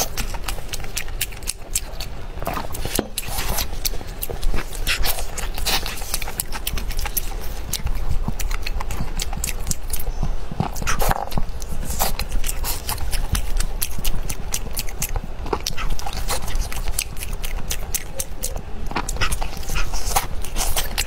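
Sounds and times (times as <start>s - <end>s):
quick irregular mouth clicks: 0.0s - 21.0s
wet chewing and lip-smacking: 0.0s - 21.0s.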